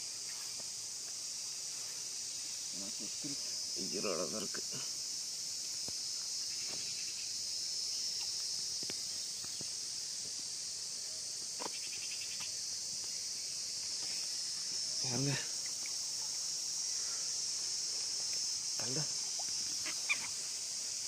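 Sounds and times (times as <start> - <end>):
high-pitched insect chorus: 0.0 - 21.0.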